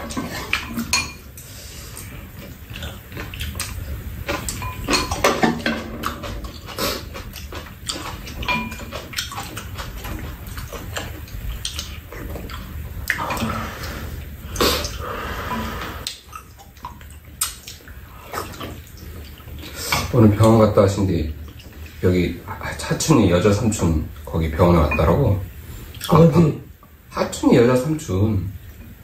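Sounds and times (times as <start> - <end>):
people chewing and slurping: 0.0 - 26.3
utensils clicking against bowls: 2.8 - 12.0.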